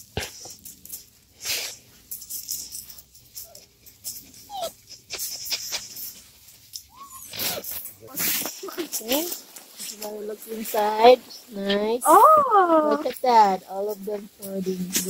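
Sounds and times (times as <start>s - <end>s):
straw rustling: 0.0s - 15.0s
puppies whimpering: 3.4s - 5.6s, 6.9s - 7.7s.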